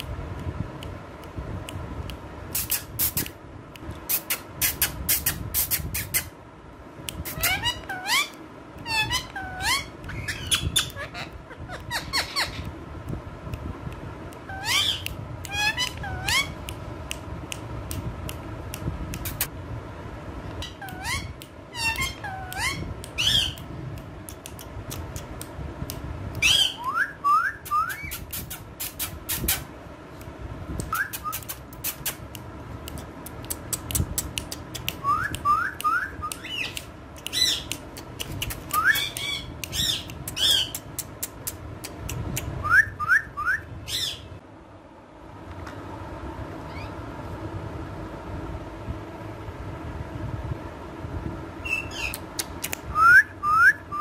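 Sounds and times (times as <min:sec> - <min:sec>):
parrot squawks: 0:07.3 - 0:12.6, 0:14.5 - 0:16.6, 0:20.6 - 0:23.6
sharp clicks: 0:21.3 - 0:26.0, 0:30.2 - 0:42.5, 0:52.1 - 0:52.9
parrot whistles: 0:26.4 - 0:28.2, 0:30.9 - 0:31.5, 0:35.0 - 0:36.7, 0:38.7 - 0:40.7, 0:42.6 - 0:44.2, 0:52.9 - 0:54.0.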